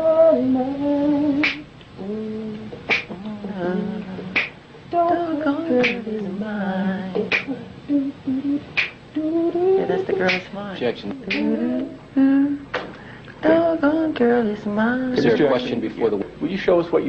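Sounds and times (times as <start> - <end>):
man singing wordless melody: 0.0 - 12.6
beatbox percussion: 0.6 - 6.0, 7.1 - 10.5, 11.2 - 12.0.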